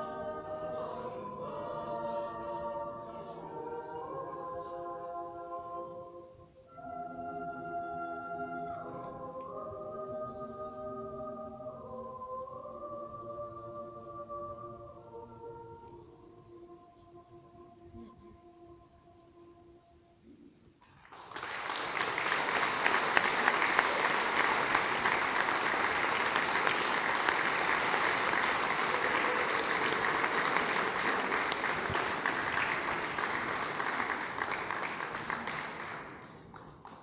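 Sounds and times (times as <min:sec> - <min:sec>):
choir holding a note: 0:00.0 - 0:19.8, 0:22.0 - 0:36.0
audience applause: 0:20.8 - 0:37.0.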